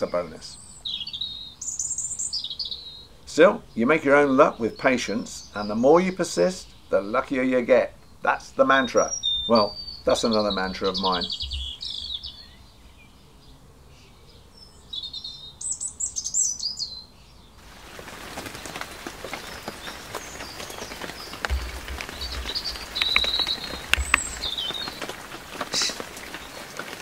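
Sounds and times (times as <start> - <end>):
birds chirping and singing: 0.0 - 27.0
drops splashing into water: 17.6 - 27.0
rain falling: 17.6 - 27.0
raindrops tapping near microphone: 17.6 - 27.0.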